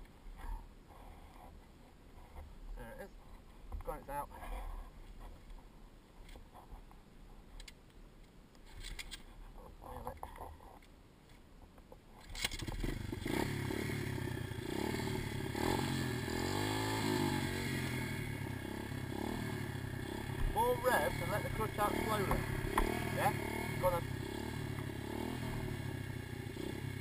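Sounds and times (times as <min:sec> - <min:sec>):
faint knocks and scrapes: 0:00.3 - 0:03.9
small motorbike engine revving: 0:12.4 - 0:27.0.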